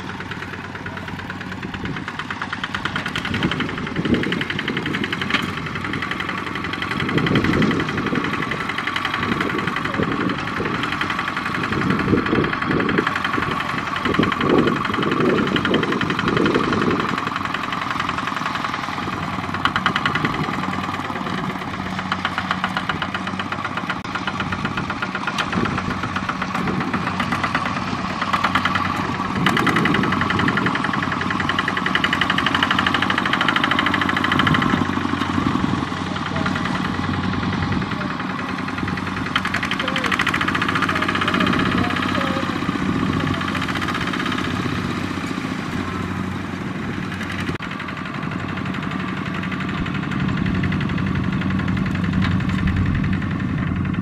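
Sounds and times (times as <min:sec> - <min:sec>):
walking tractor diesel engine: 0:00.0 - 0:54.0.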